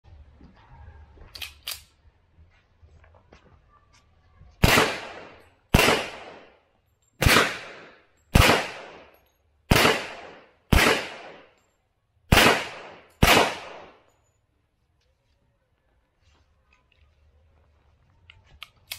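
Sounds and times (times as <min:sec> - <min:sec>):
pistol shots with echo: 0:04.6 - 0:06.6, 0:07.2 - 0:11.6, 0:12.3 - 0:14.1.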